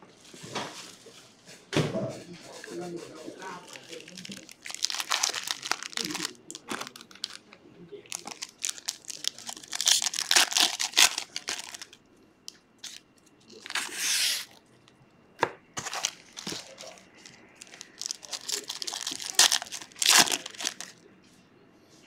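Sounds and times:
foil wrappers crinkling and tearing: 0:03.4 - 0:07.4, 0:08.1 - 0:12.0, 0:12.8 - 0:14.6, 0:15.8 - 0:21.0.

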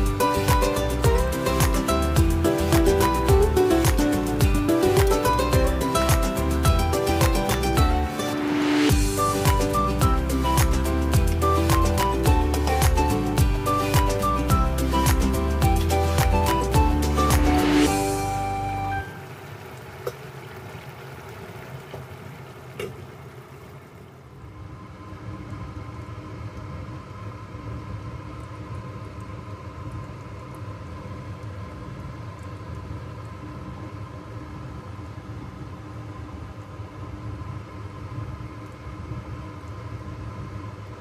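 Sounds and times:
kitchen equipment hum and rumble: 0:17.8 - 0:41.0.

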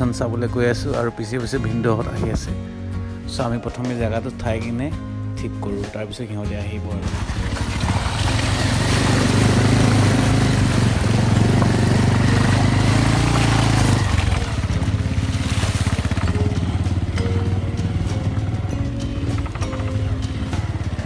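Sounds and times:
motorcycle engine pulling: 0:07.0 - 0:21.0
motorcycle riding through stream: 0:07.0 - 0:21.0.

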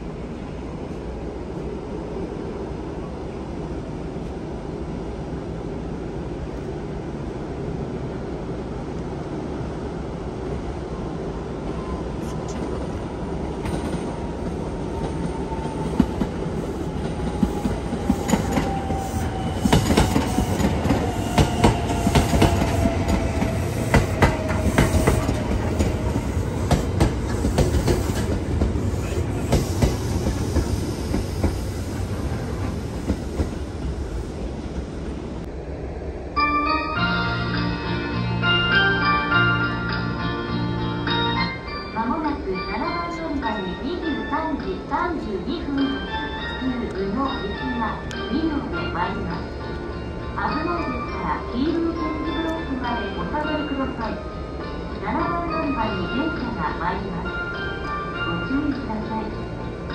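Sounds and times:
train rumble: 0:00.0 - 0:36.5.

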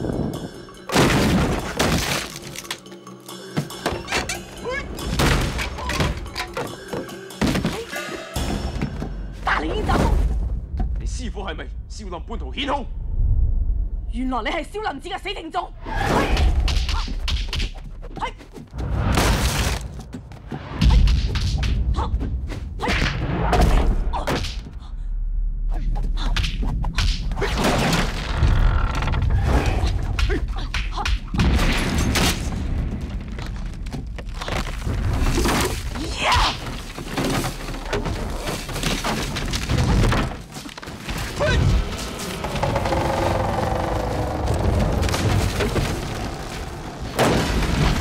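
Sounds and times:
film music score: 0:00.0 - 0:48.0
wooden beams breaking: 0:00.9 - 0:02.8, 0:31.4 - 0:41.4, 0:42.0 - 0:48.0
heavy low rumble: 0:41.7 - 0:47.8.

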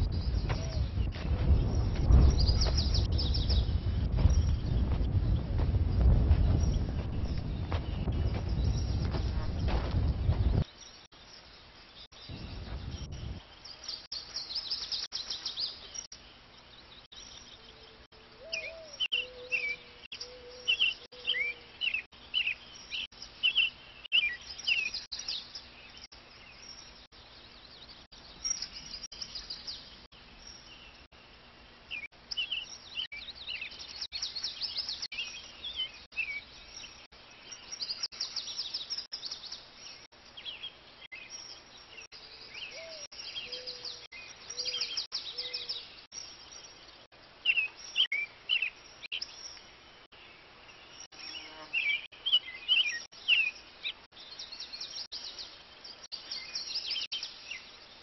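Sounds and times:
low bird calls: 0:00.0 - 0:10.8, 0:17.3 - 0:22.6, 0:42.1 - 0:46.2
birds chirping and trilling: 0:00.0 - 0:58.0
brief low rumble: 0:12.3 - 0:13.4.

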